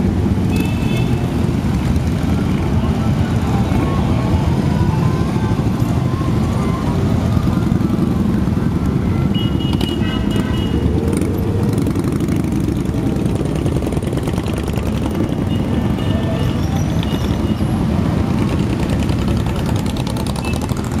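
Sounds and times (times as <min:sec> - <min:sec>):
motorcycle engines rumbling: 0:00.0 - 0:21.0.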